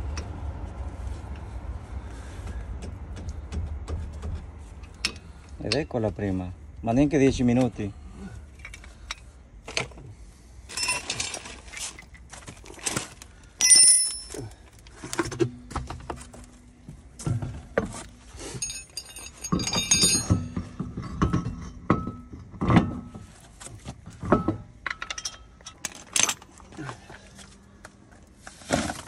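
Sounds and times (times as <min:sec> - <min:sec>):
metal tools clinking and clanking: 0:10.7 - 0:15.5, 0:17.2 - 0:23.2, 0:24.2 - 0:26.6.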